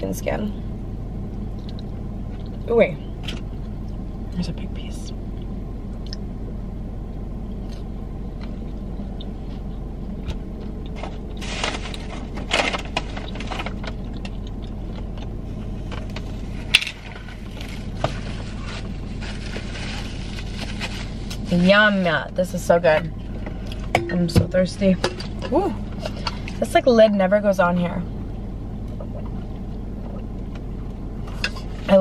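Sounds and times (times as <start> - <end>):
car engine idling hum: 0.0 - 32.0
rustling of paper and containers: 11.0 - 14.2, 16.0 - 22.0.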